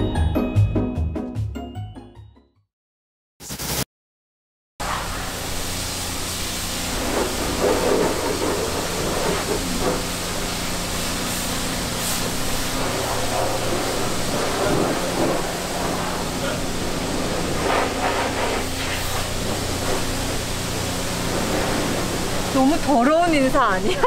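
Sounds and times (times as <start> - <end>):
steady hiss: 4.8 - 23.8
low machine hum: 4.9 - 24.0.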